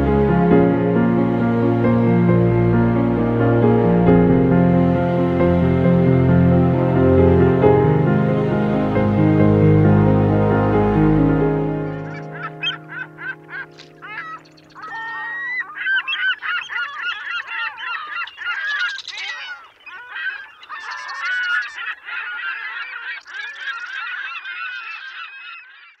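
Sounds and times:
background music: 0.0 - 15.6
flock of birds calling: 11.8 - 26.0.

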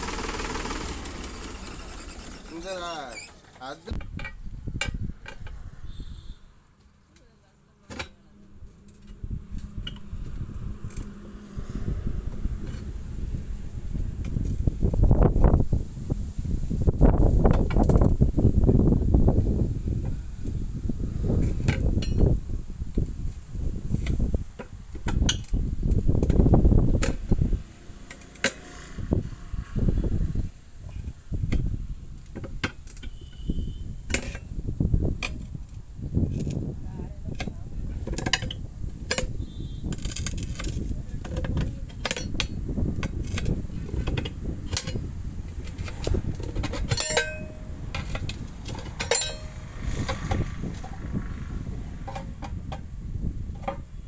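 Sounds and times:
metal tyre lever clinks: 38.2 - 51.0.

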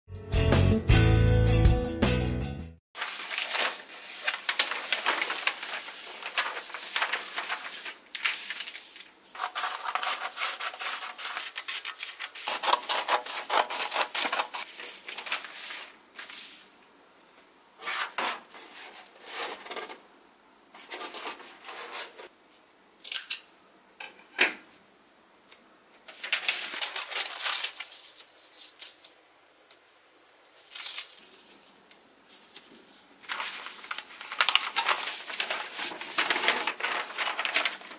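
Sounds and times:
large paper sheet rustling: 3.0 - 16.8, 20.8 - 22.3, 26.0 - 29.2, 29.8 - 37.9.

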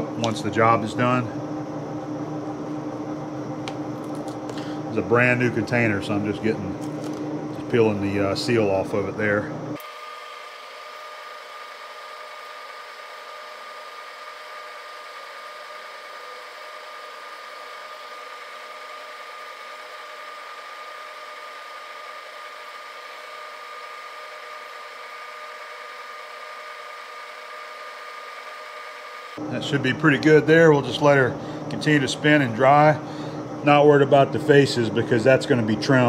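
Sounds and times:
high whine: 0.0 - 9.8, 28.9 - 36.0
lathe humming: 0.0 - 36.0.

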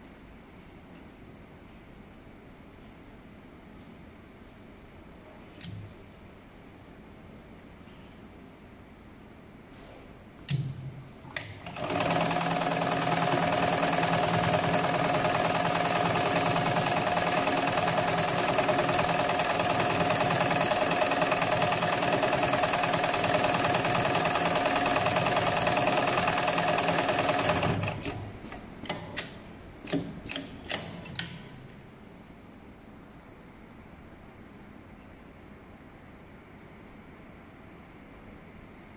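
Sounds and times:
machine clicks and knocks: 10.5 - 31.6
sewing machine running: 11.6 - 28.6.

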